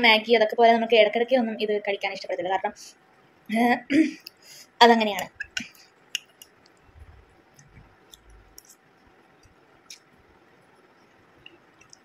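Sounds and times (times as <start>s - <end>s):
soft low thuds: 6.9s - 8.5s.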